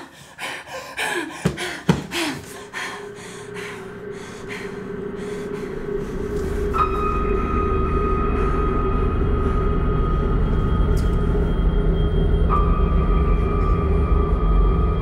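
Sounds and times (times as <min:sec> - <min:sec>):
person gasping: 0:00.0 - 0:06.3
droning tone: 0:02.6 - 0:15.0.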